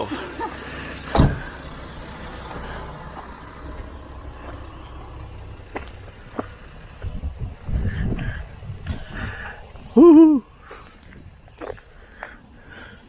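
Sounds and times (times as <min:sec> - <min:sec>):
engine and tyres rumbling: 0:00.0 - 0:13.0
sharp thump: 0:01.1 - 0:01.5.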